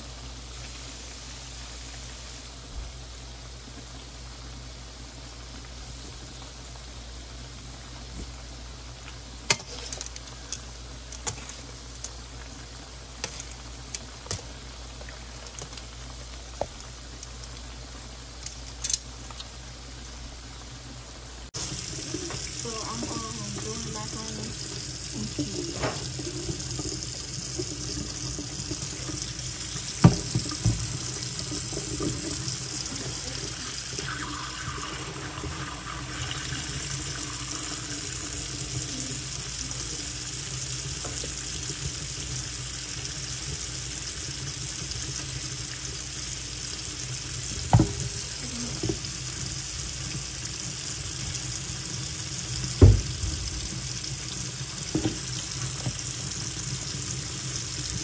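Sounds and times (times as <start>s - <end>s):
tap running into sink: 21.6s - 39.0s, 47.6s - 49.1s, 52.6s - 54.0s, 54.8s - 56.4s.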